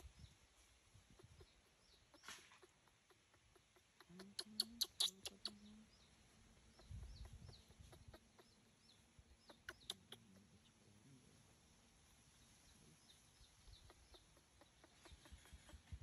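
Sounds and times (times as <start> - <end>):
low animal clucks: 1.1 - 5.9, 6.5 - 8.7, 9.4 - 10.8, 13.7 - 16.0.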